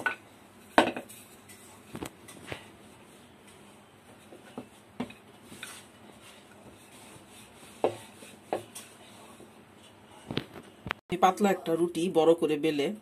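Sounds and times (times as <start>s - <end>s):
rolling pin rubbing dough: 1.3s - 10.2s.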